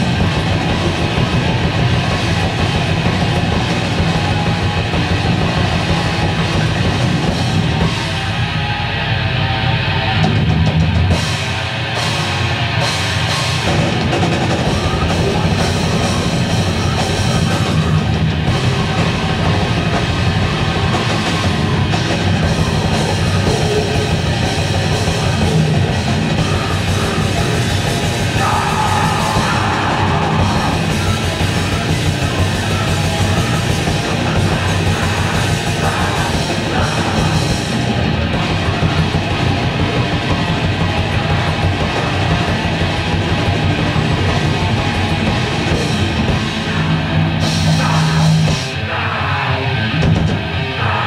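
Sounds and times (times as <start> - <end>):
grindcore band playing live: 0.0 - 51.0
heavy drum kit: 0.0 - 51.0.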